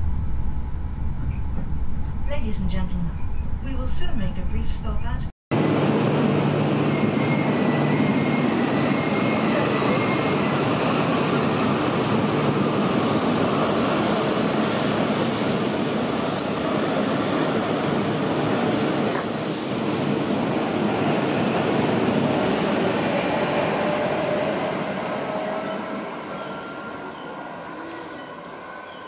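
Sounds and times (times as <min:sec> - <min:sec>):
low hum: 0:00.0 - 0:05.3
train wheel and running noise: 0:00.0 - 0:29.0.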